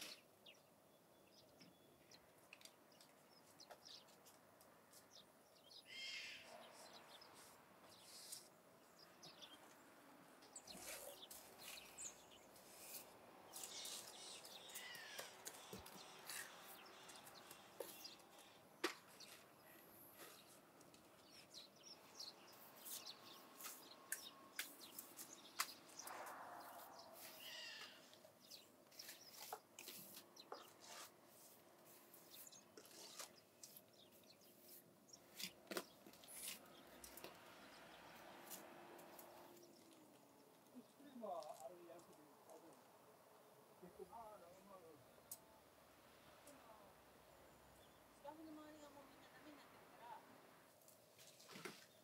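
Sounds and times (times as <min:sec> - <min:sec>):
bird chirps: 0:10.4 - 0:20.6, 0:21.2 - 0:31.0.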